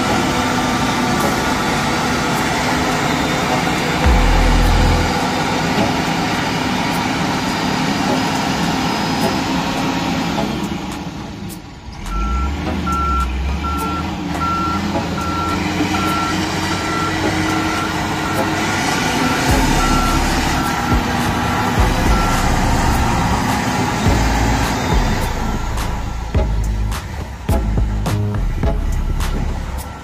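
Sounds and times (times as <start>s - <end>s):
diesel engine running: 0.0s - 30.0s
reversing alarm beeps: 12.1s - 26.5s.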